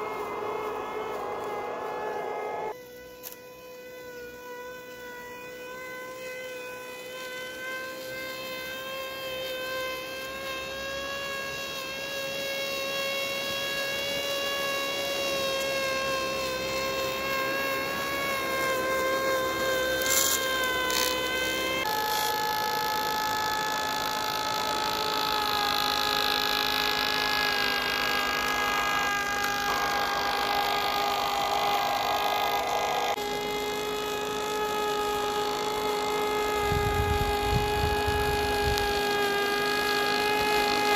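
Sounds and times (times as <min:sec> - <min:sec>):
electric motor whine: 0:00.0 - 0:40.9.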